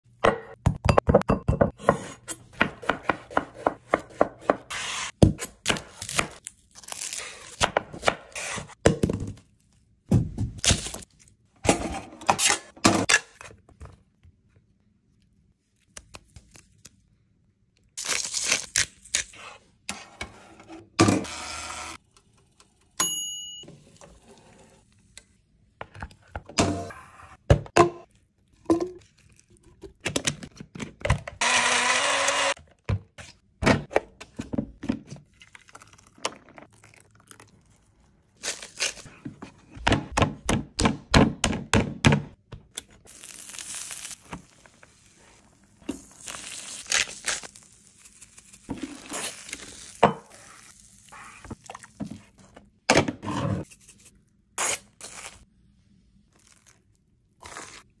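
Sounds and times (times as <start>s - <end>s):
small blender running: 21.2s - 22.0s, 31.4s - 32.6s.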